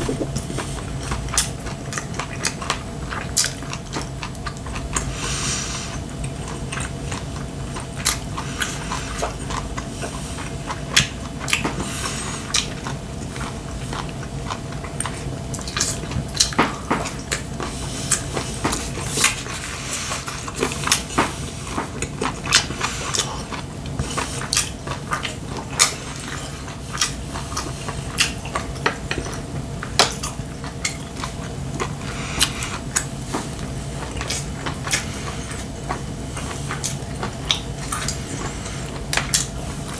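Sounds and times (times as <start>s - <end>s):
chewing: 0.0s - 39.9s
steady low hum: 0.0s - 39.9s.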